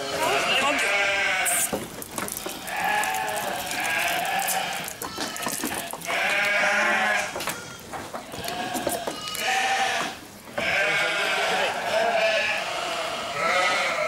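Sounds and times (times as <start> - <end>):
sheep bleating: 0.0 - 14.0
handling knocks and rustles: 1.6 - 10.6.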